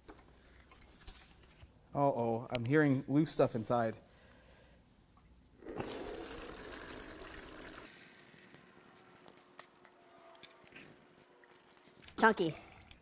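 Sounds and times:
oil pouring into drain pan: 5.6s - 8.8s.

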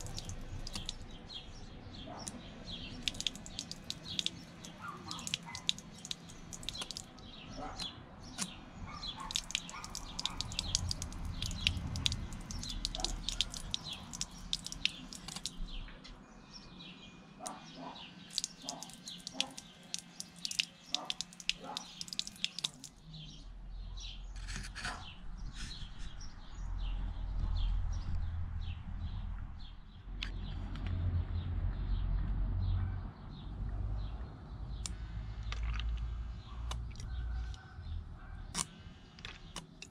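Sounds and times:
small birds chirping: 0.0s - 39.9s
low rumble: 25.1s - 32.6s.

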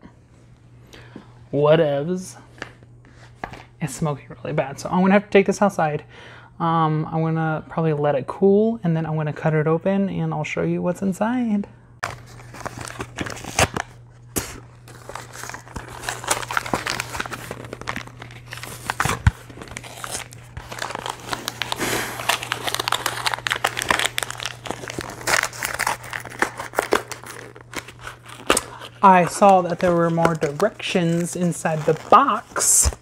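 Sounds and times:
cardboard box tearing and crumpling: 12.0s - 33.0s.

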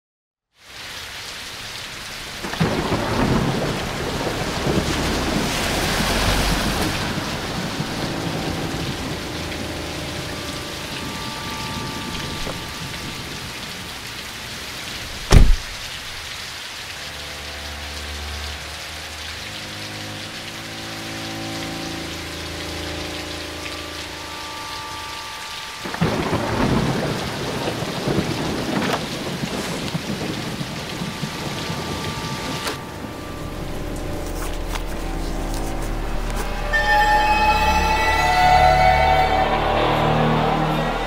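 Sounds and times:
steady rain falling: 0.5s - 41.0s
loud sharp thunderclap: 2.4s - 9.2s, 15.2s - 16.0s, 25.9s - 32.8s
rolling thunder: 2.4s - 14.0s, 25.8s - 34.0s.

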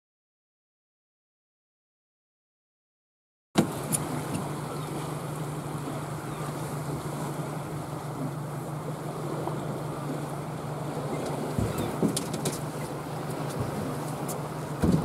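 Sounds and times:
outboard motor running: 3.6s - 15.0s
water noise: 3.6s - 15.0s.

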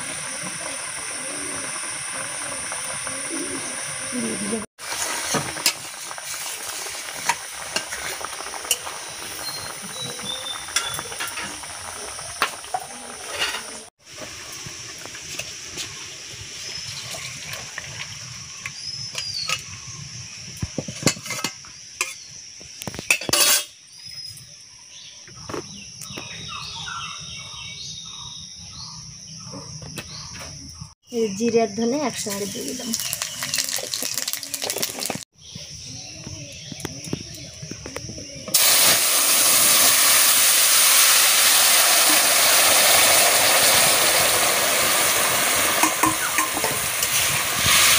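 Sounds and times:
curry bubbling: 0.0s - 19.8s, 32.2s - 35.2s
metal spatula scraping wok: 13.2s - 13.8s, 23.1s - 23.7s.

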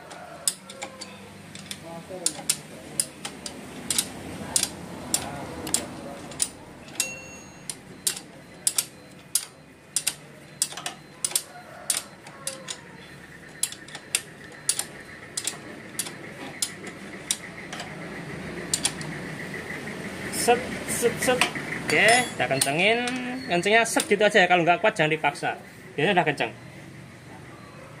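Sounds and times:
ratchet wrench clicking: 0.4s - 12.8s, 13.6s - 18.0s, 18.6s - 19.1s.

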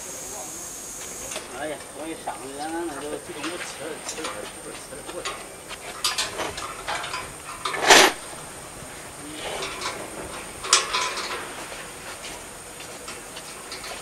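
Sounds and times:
metal knocks and clanks: 3.3s - 8.5s, 9.4s - 14.0s.

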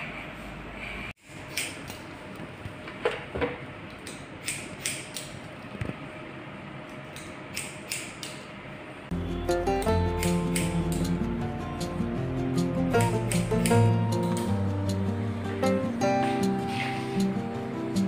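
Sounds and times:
scissors snipping hair: 1.2s - 2.0s, 4.0s - 5.4s, 7.1s - 8.4s, 9.8s - 11.2s, 13.0s - 14.6s
music: 9.1s - 18.0s.

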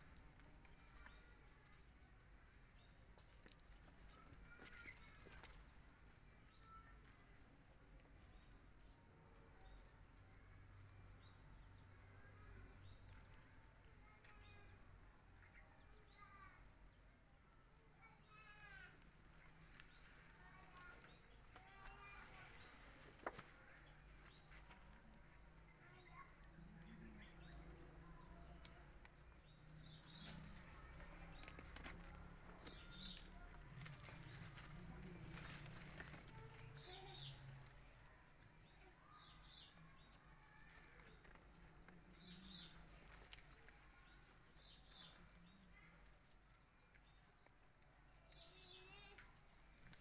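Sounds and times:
leaf crackling and rustling: 19.5s - 23.9s, 29.7s - 38.8s, 40.2s - 46.4s.

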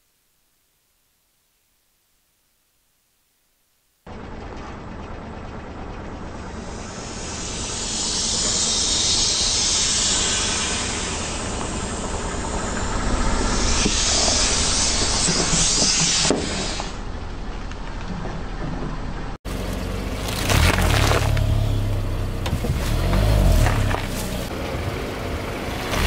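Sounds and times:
car rolling rumble: 4.1s - 15.7s, 17.0s - 26.0s
air hissing from inflatable toys: 6.6s - 17.0s.

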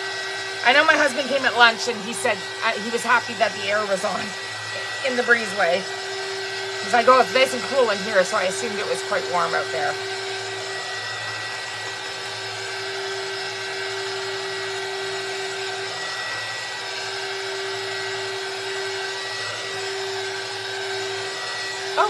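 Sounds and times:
heat tool fan whirring: 0.0s - 22.0s.

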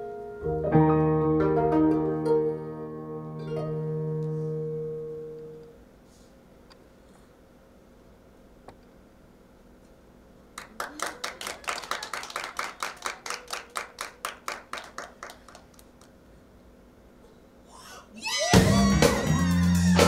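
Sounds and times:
sharp handclaps: 10.6s - 16.2s.

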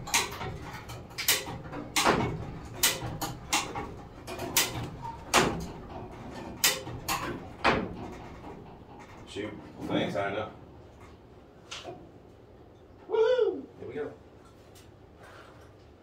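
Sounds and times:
hoist clacking: 0.0s - 10.0s.

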